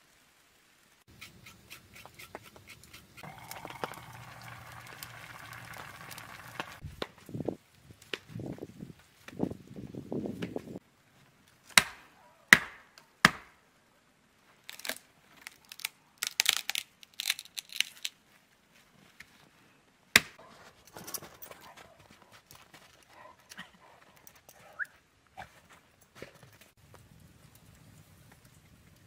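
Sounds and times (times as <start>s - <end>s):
twigs rustling and crackling: 3.1s - 9.8s, 14.4s - 19.6s
dry wood cracking: 14.6s - 18.2s.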